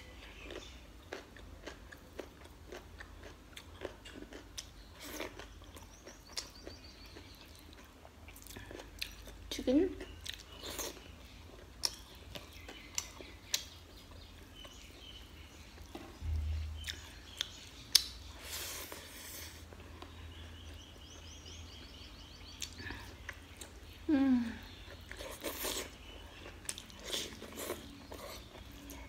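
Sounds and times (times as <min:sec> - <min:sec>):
soft chewing: 0:00.0 - 0:29.0
mouth clicks and smacks: 0:16.8 - 0:18.2.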